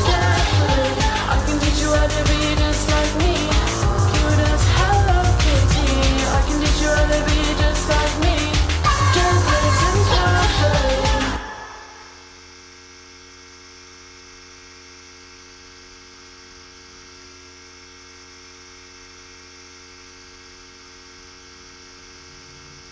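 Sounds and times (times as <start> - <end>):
music: 0.0 - 12.3
electrical hum: 0.0 - 22.9.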